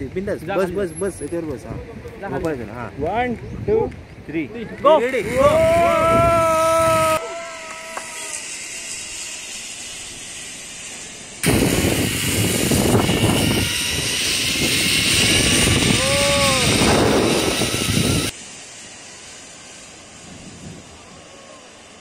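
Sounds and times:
wind rushing over microphone: 0:01.4 - 0:07.2, 0:11.4 - 0:18.3, 0:20.2 - 0:21.3
rider shouting: 0:04.8 - 0:08.4, 0:16.0 - 0:16.9
pulley running along steel cable: 0:04.8 - 0:22.0.

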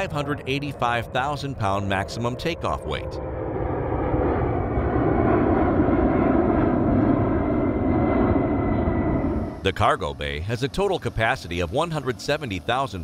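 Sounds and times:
jet aircraft roar: 0:00.0 - 0:13.0.

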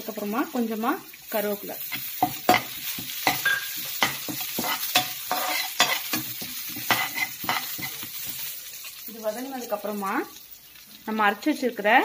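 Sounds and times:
spices sizzling in oil: 0:00.0 - 0:12.0
steel spoon scraping a pan: 0:01.8 - 0:09.0.

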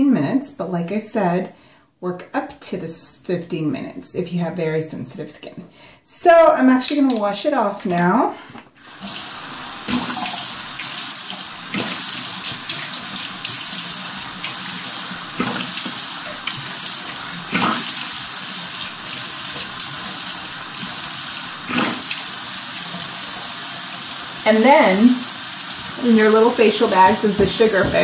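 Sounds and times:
water splashing on face: 0:08.8 - 0:23.2
tap running into sink: 0:09.0 - 0:20.1, 0:21.7 - 0:22.3, 0:26.2 - 0:28.0.

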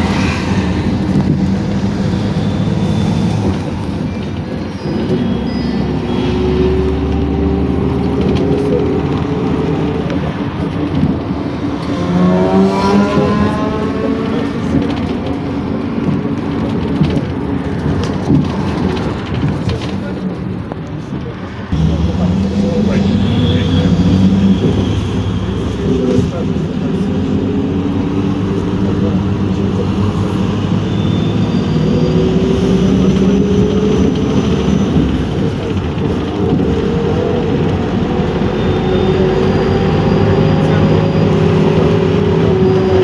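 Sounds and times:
bus engine and road rumble: 0:00.0 - 0:43.0.

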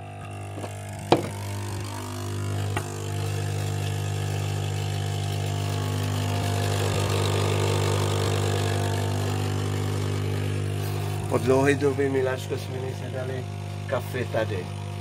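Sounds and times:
coffee machine pump humming: 0:00.0 - 0:15.0
coffee streaming into mug: 0:05.3 - 0:11.4.

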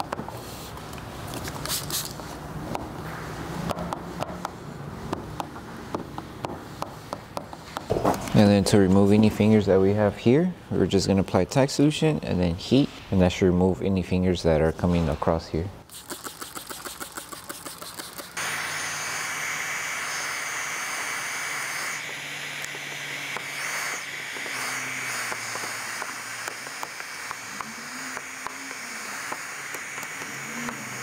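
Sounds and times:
spray bottle squirting: 0:01.3 - 0:02.3, 0:15.9 - 0:18.4, 0:20.9 - 0:31.0
heat gun blowing hot air: 0:15.9 - 0:31.0.

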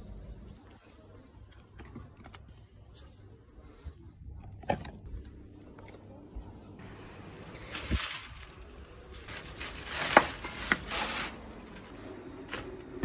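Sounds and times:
plastic bag rustling: 0:07.4 - 0:13.0.

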